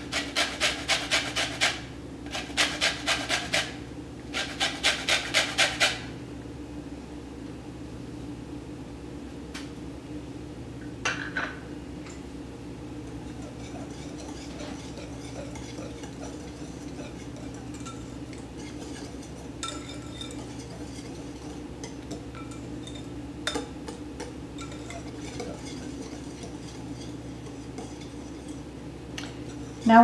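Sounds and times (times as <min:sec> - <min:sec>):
whisk beating batter in bowl: 0:00.0 - 0:06.0, 0:12.9 - 0:30.0
whisk clinking against glass: 0:13.2 - 0:28.6.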